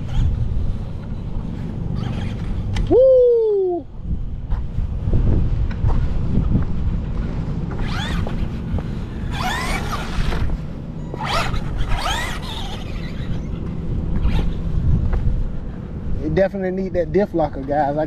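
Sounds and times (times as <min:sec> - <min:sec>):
wind rumble on microphone: 0:00.0 - 0:18.0
toy truck electric motor whining: 0:07.8 - 0:08.3, 0:09.2 - 0:10.5, 0:11.2 - 0:13.5.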